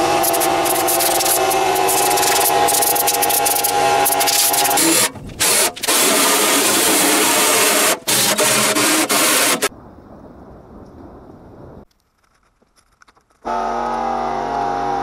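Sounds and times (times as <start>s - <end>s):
compressed air blow gun hissing: 0.0s - 9.7s.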